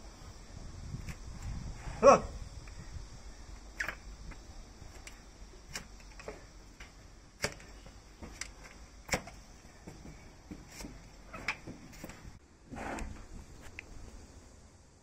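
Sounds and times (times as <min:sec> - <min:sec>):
paring ticks: 0:02.4 - 0:12.4.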